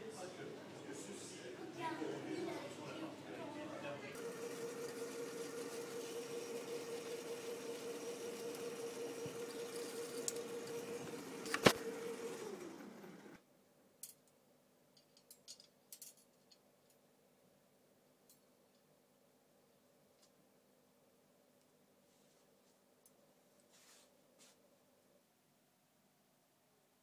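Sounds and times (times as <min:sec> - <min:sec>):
film rewinder motor humming: 0:04.2 - 0:13.4.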